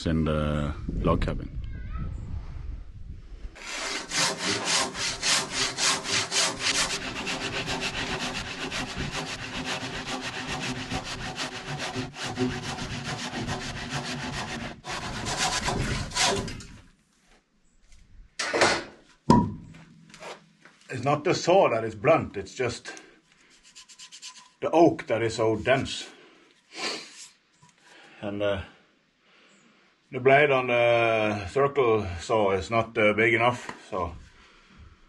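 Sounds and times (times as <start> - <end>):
handsaw cutting through wood: 3.6 - 16.7
knocks: 18.4 - 19.9.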